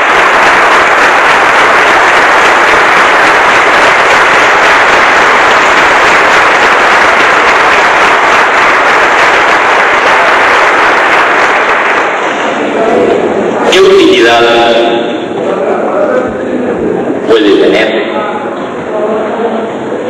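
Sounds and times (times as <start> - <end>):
audience applauding: 0.0 - 13.3.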